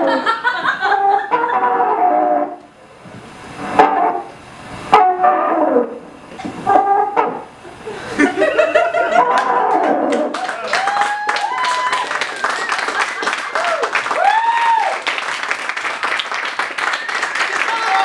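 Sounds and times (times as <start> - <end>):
wavering horn-like tones: 1.0 - 2.7, 3.6 - 6.1, 6.7 - 7.5.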